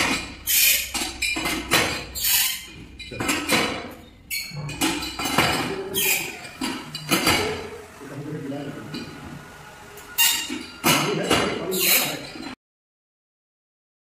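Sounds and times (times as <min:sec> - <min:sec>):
clattering and knocking: 0:00.0 - 0:07.7, 0:10.2 - 0:12.6.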